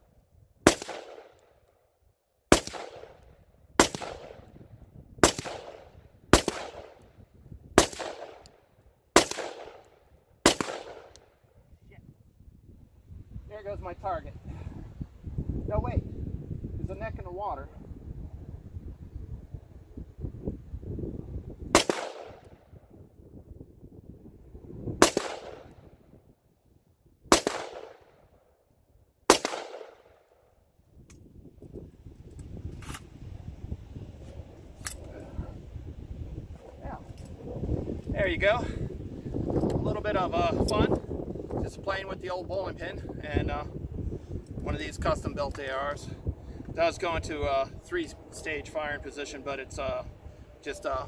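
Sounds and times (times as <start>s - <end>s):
rifle shots with echo: 0.6s - 1.4s, 2.5s - 4.5s, 5.2s - 7.1s, 7.8s - 8.6s, 9.2s - 11.3s, 21.7s - 22.6s, 25.0s - 25.9s, 27.3s - 28.2s, 29.3s - 30.4s.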